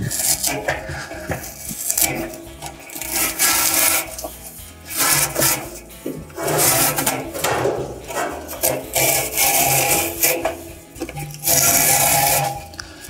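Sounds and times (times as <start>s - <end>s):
felt seal tearing: 0.1s - 4.3s.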